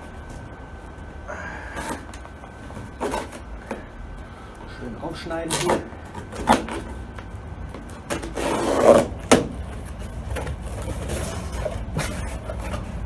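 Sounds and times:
cardboard scraping and rubbing: 0:01.8 - 0:03.9, 0:05.4 - 0:13.0.

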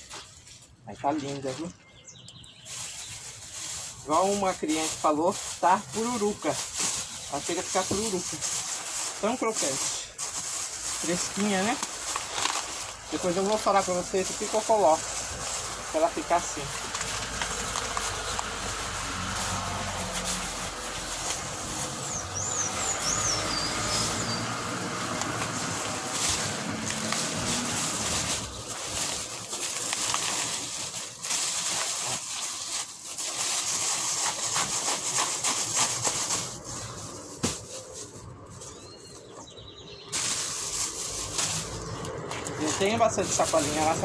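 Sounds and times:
plastic bag rustling: 0:00.0 - 0:44.0
bird chirp: 0:01.2 - 0:03.8, 0:22.0 - 0:24.6, 0:38.6 - 0:40.2.

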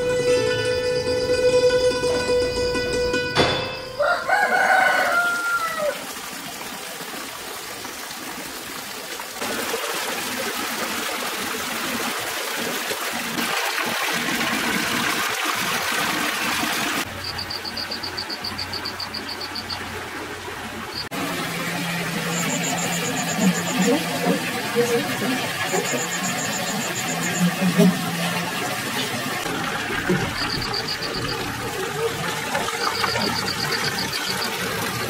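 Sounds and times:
rooster crowing: 0:04.0 - 0:06.1
fountain water splashing: 0:04.0 - 0:35.0.

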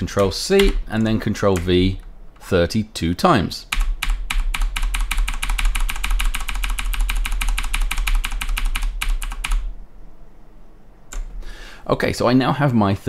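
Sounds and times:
computer keyboard key pressed rapidly: 0:03.7 - 0:09.7.

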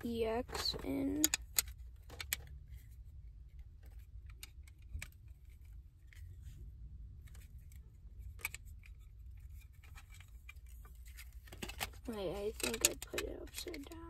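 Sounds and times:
steady low hum: 0:00.0 - 0:14.0
plastic card case clicking: 0:11.5 - 0:14.0.

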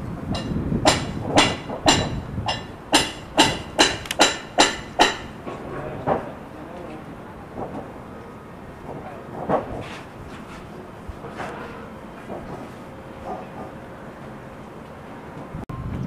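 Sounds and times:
hammer striking metal: 0:00.3 - 0:05.6.

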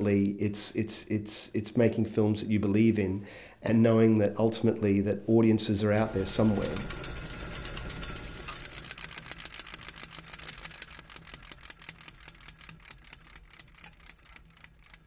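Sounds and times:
rapid mechanical clicking: 0:06.0 - 0:15.0.

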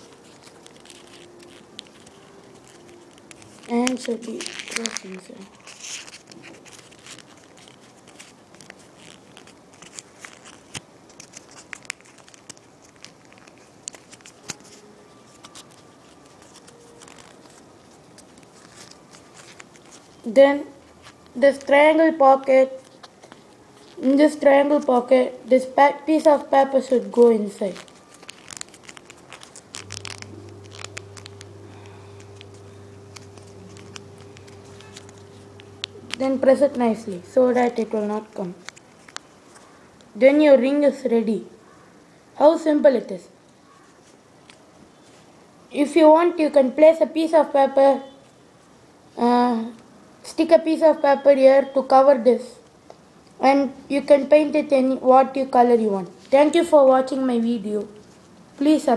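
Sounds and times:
low steady hum: 0:00.0 - 0:06.6, 0:27.7 - 0:39.0
paper crinkling: 0:00.0 - 0:21.8, 0:22.5 - 0:25.1, 0:27.0 - 0:40.2, 0:43.7 - 0:45.3.

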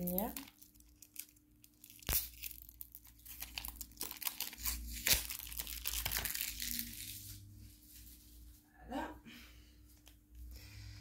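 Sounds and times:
packaging crinkling and tearing: 0:00.0 - 0:07.4.

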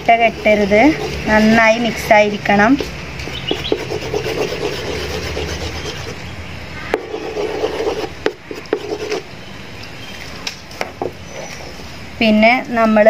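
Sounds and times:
scraping stirring of dough: 0:00.0 - 0:06.2, 0:07.0 - 0:09.3.

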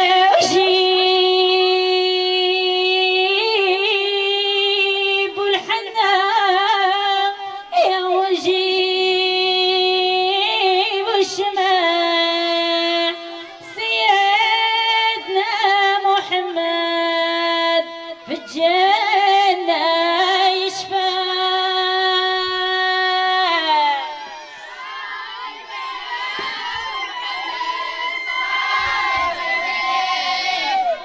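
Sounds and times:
woman singing with warbling ornaments: 0:00.0 - 0:24.2.

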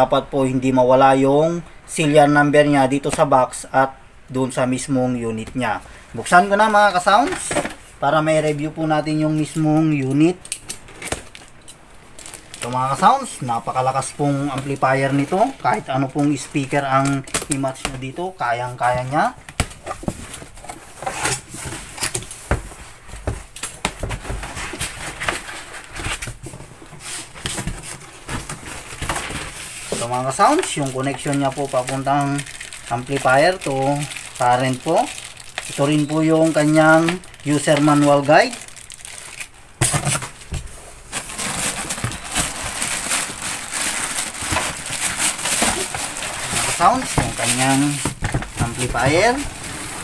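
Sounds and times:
plastic wrapping crinkling: 0:06.2 - 0:50.0
cardboard scrapes and rustles: 0:40.0 - 0:50.0.

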